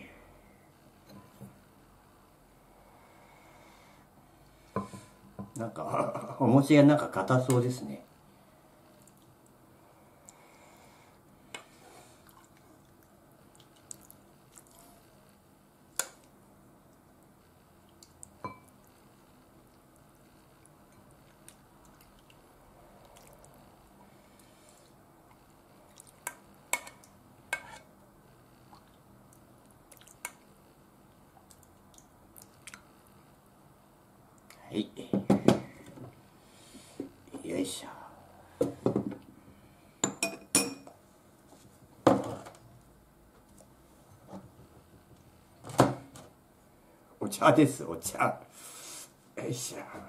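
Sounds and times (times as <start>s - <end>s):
quiet wet spooning: 11.5s - 15.1s, 16.0s - 19.0s, 19.6s - 23.6s, 28.7s - 30.5s.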